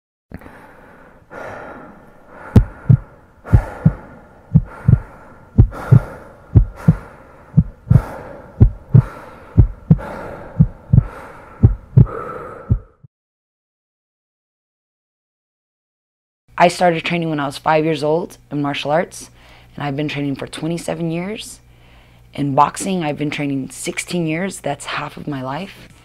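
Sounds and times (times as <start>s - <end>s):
steady hum: 0.4s - 13.0s, 16.6s - 26.0s
heartbeat low thumps: 2.4s - 13.1s.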